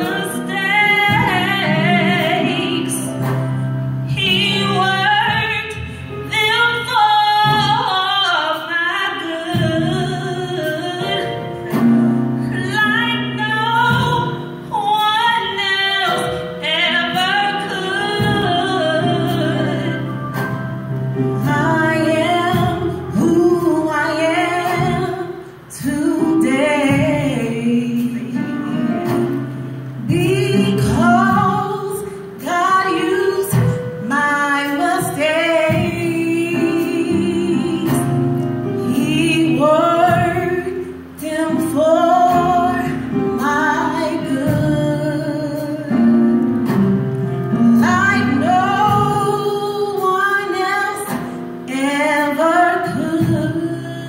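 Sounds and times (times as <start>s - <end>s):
women singing gospel: 0.0s - 3.3s, 30.0s - 38.1s.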